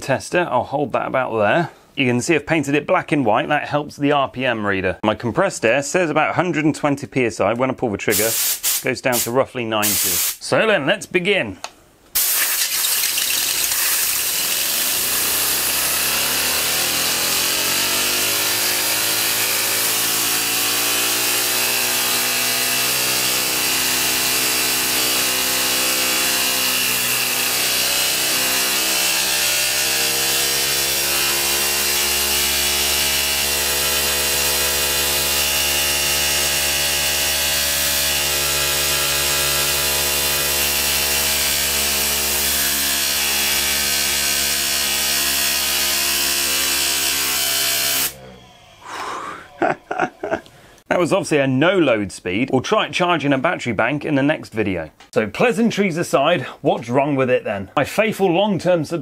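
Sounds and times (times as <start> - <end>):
compressed air hissing: 8.1 - 8.9, 9.8 - 10.4, 12.2 - 12.9
turbine rotor whine: 48.2 - 49.0.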